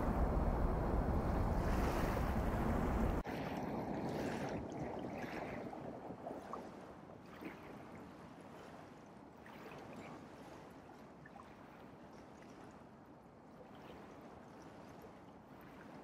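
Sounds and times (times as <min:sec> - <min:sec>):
steady outdoor hiss: 0:00.0 - 0:03.2
wind buffeting microphone: 0:00.0 - 0:06.8.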